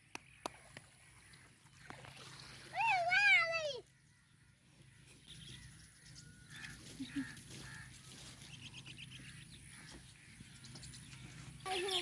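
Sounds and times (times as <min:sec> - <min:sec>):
bird calls: 0:03.3 - 0:12.0
bird chirps: 0:03.8 - 0:12.0.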